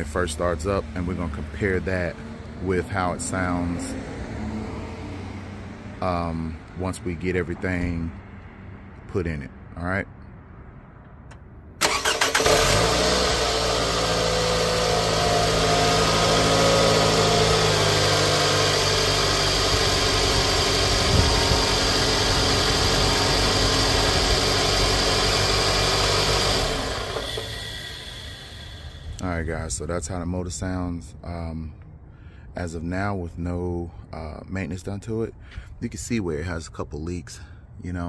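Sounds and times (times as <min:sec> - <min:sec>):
car engine starting and idling: 0:11.1 - 0:29.4.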